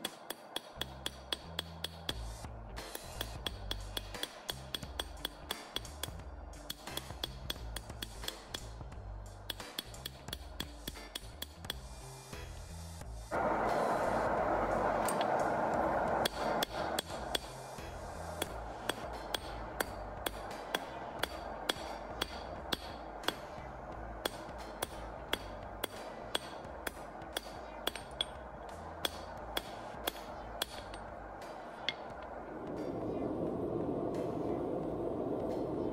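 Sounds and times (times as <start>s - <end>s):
hammer striking steel on anvil: 0.0s - 11.9s, 13.4s - 32.3s
loud rushing noise: 13.3s - 35.9s.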